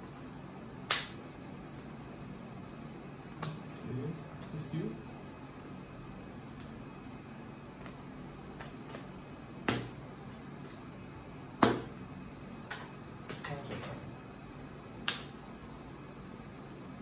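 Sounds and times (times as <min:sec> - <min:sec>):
cards slapped onto playmat: 0:11.6 - 0:11.9.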